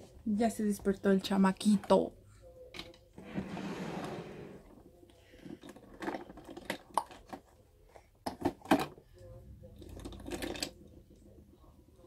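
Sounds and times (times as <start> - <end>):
makeup items rustling: 5.4 - 7.6.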